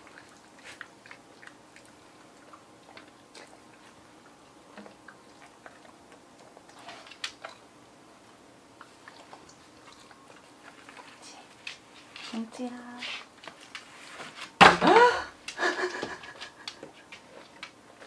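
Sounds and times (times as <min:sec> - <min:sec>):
dog chewing: 0:00.0 - 0:12.4.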